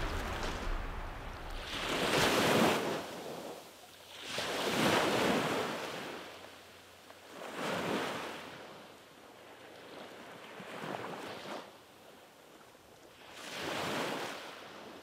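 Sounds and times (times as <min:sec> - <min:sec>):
small waves washing onto sand: 0:00.0 - 0:15.0.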